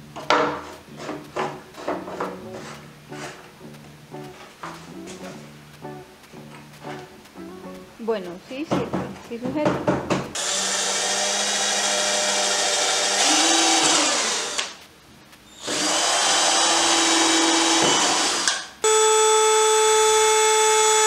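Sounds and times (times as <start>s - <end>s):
cordless drill boring into wood: 10.4s - 14.8s, 15.5s - 21.0s
rotary tool whine: 10.4s - 14.8s, 15.5s - 21.0s.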